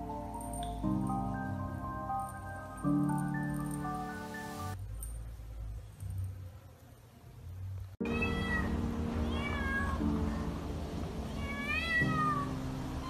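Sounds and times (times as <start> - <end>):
background music with held chords: 0.0 - 4.8, 8.0 - 13.0
kitten meowing: 8.0 - 10.5, 11.3 - 12.6.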